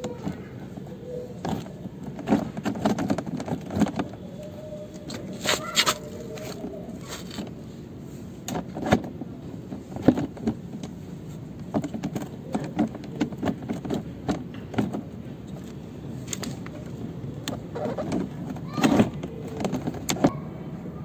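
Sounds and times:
plastic parts knocking and clicking: 1.4s - 4.2s, 8.5s - 11.0s, 11.6s - 16.8s, 17.4s - 20.3s.

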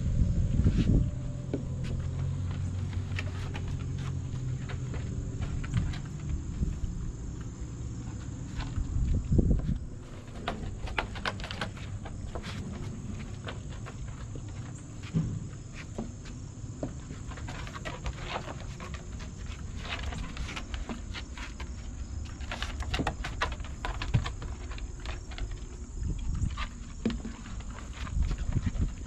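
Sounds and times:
steady low rumble: 0.0s - 10.3s
dog paws clicking on wood: 1.6s - 29.0s.

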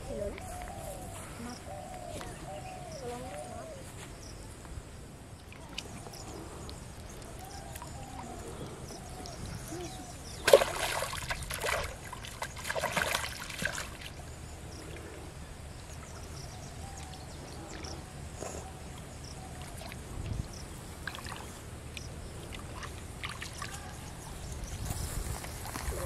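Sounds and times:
outdoor background: 0.0s - 26.0s
water splashing: 5.4s - 15.1s, 15.9s - 24.6s.

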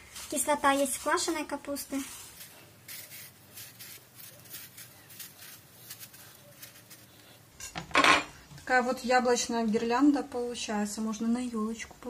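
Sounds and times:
knife scraping apple peel: 0.0s - 7.7s.

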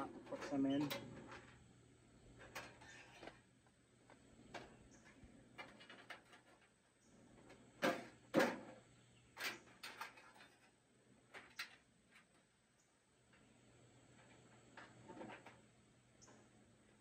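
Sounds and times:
camp stove clicks and knocks: 7.4s - 8.8s.

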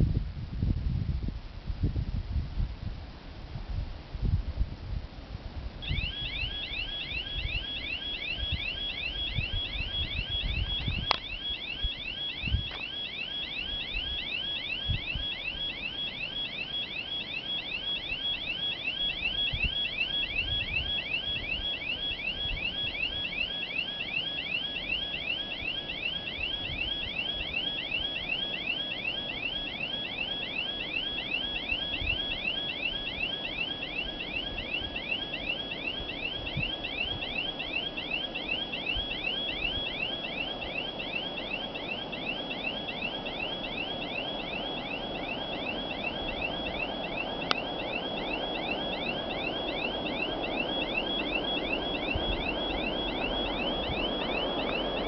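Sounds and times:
wind buffeting microphone: 0.0s - 12.9s, 19.1s - 23.4s, 38.4s - 55.0s
level crossing warning chimes: 5.8s - 55.0s.

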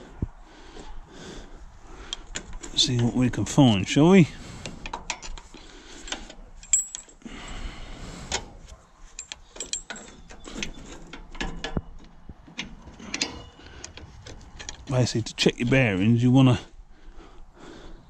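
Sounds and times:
metallic clicks and rattles: 4.6s - 7.2s, 9.2s - 15.4s.

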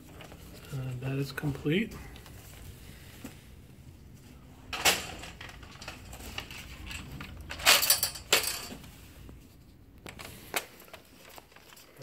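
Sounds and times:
plastic and metal parts clattering: 4.7s - 9.0s, 10.0s - 12.0s.

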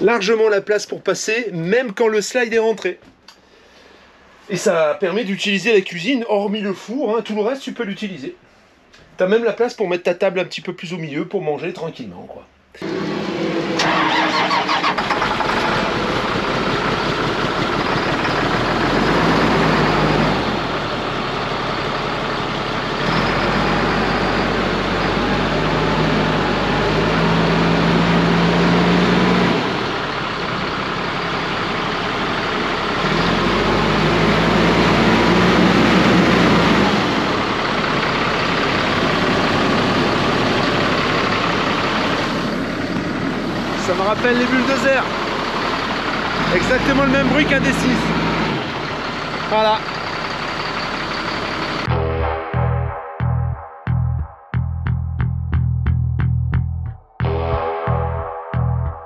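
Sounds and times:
diesel engine running: 12.8s - 53.0s.

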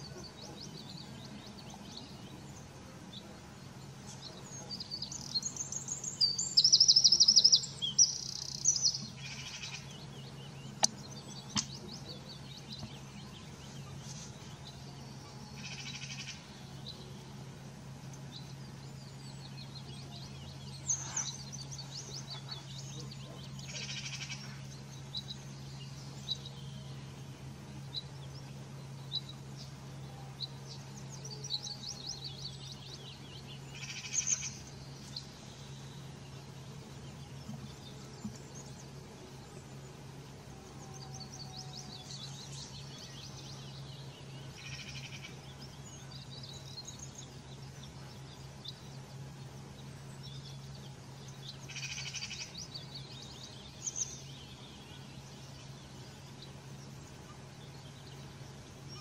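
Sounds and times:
small birds trilling and chirping: 0.0s - 59.0s
steady low hum: 0.0s - 59.0s
harsh bird calls: 4.7s - 10.1s, 15.5s - 16.5s, 20.9s - 25.0s, 33.5s - 34.8s, 43.6s - 46.3s, 51.5s - 54.1s.

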